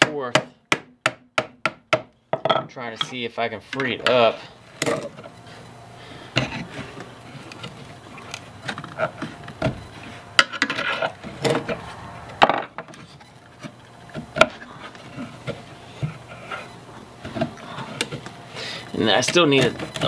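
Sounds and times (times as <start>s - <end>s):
metal scraping and grinding: 6.4s - 13.4s.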